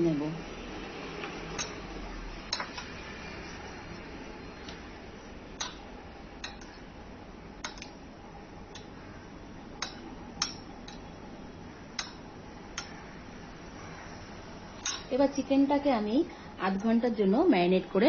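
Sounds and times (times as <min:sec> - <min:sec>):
spoon clinking on ceramic bowl: 0:01.6 - 0:01.8, 0:14.8 - 0:15.1.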